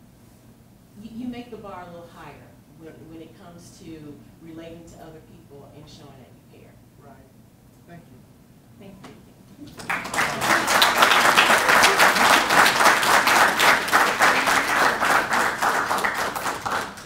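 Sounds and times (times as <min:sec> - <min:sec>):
audience applauding: 0:09.7 - 0:17.0.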